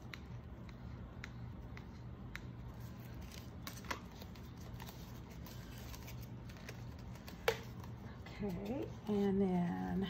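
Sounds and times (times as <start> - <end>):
faint clicks and taps: 0.0 - 5.0
steady low hum: 0.0 - 10.0.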